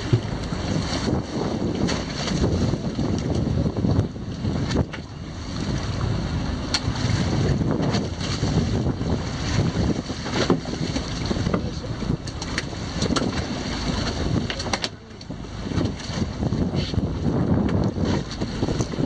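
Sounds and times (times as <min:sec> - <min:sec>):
sea water rushing along hull: 0:00.0 - 0:19.0
wind buffeting microphone: 0:00.0 - 0:19.0.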